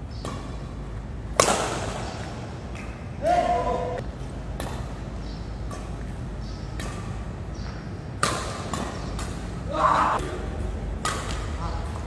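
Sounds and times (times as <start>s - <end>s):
racket striking shuttlecock: 0.1s - 3.1s, 4.0s - 12.0s.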